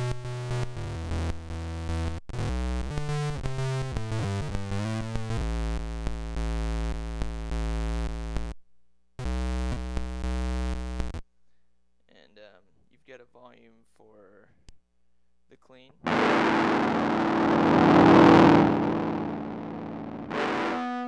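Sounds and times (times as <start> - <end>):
buzzy distorted electric guitar: 0.0 - 8.6, 9.2 - 11.2, 16.0 - 21.0.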